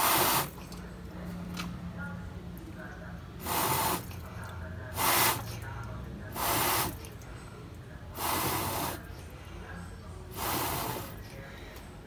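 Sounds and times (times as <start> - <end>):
breath puffs blown into radiator: 0.0 - 0.6, 3.4 - 4.2, 5.0 - 5.6, 6.4 - 7.0, 8.2 - 9.0, 10.3 - 11.2.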